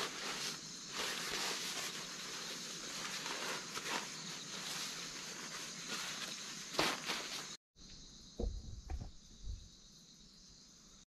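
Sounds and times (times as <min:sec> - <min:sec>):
footsteps on dry leaves: 0:00.0 - 0:07.6
plastic tarp crinkling: 0:00.0 - 0:07.6
high background hiss: 0:00.0 - 0:11.0.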